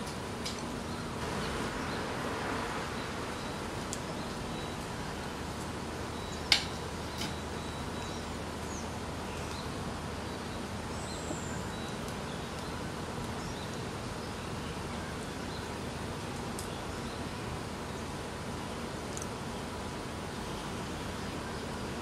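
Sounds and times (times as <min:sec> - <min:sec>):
outdoor background hiss: 0:00.0 - 0:22.0
faint high bird chirps: 0:02.9 - 0:05.3, 0:06.1 - 0:15.7.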